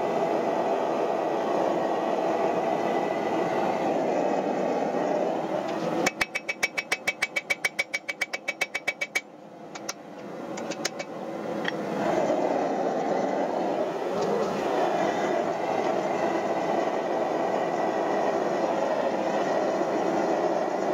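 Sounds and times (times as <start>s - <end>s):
steady rushing roar: 0.0s - 20.9s.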